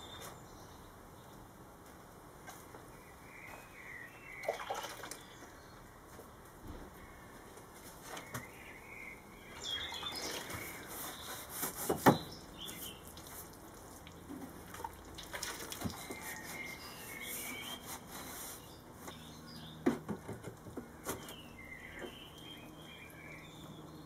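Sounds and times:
birds chirping: 0:02.6 - 0:24.0
brush swishing water on wood: 0:09.6 - 0:19.0.

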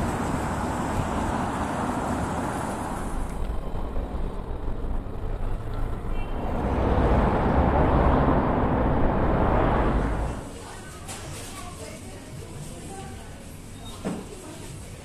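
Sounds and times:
cars running past: 0:00.0 - 0:10.5.

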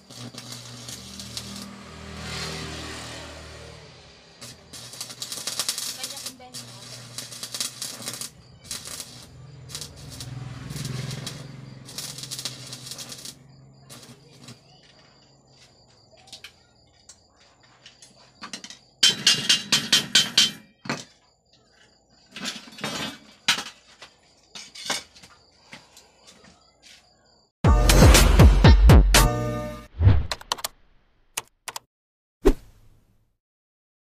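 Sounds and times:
welding arc crackling: 0:00.0 - 0:14.7.

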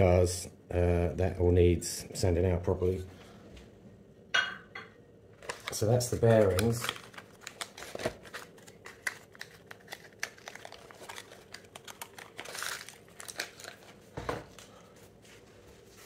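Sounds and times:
plastic wrapper crinkling: 0:05.4 - 0:14.8.

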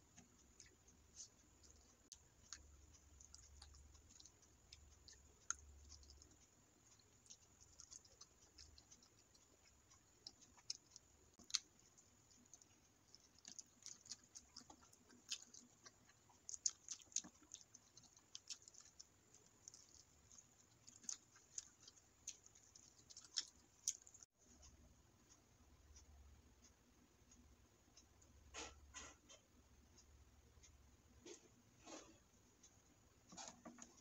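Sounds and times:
wet chewing and smacking: 0:00.0 - 0:26.1, 0:31.2 - 0:34.0.

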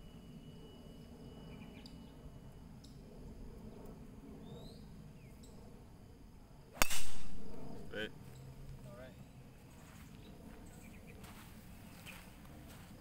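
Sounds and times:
steady low rumble: 0:00.0 - 0:13.0
faint bird chirps: 0:00.5 - 0:02.3, 0:04.4 - 0:05.5.

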